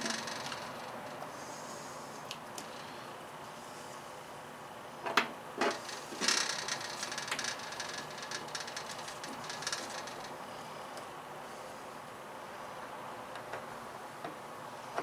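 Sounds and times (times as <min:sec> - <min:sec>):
rustling of wiring: 0:00.0 - 0:03.6, 0:05.0 - 0:11.6.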